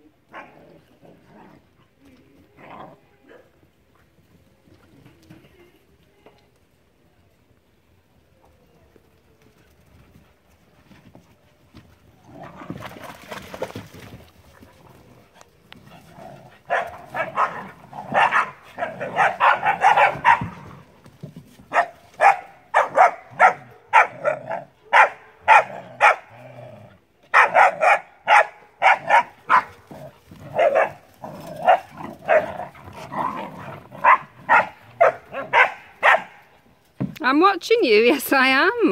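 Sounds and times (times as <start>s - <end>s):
puppies barking: 16.7s - 20.6s, 21.7s - 26.2s, 27.3s - 29.8s, 34.0s - 36.4s.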